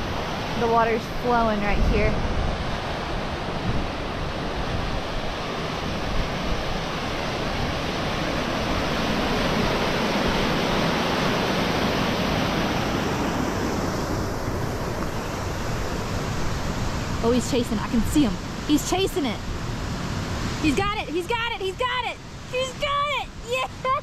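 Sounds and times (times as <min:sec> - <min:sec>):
water rushing down spillway: 0:20.4 - 0:24.0.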